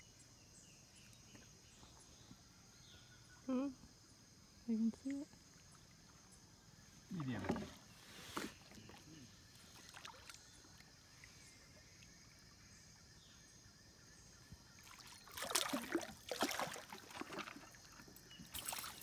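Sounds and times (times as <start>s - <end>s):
fish splashing at water surface: 14.9s - 17.8s.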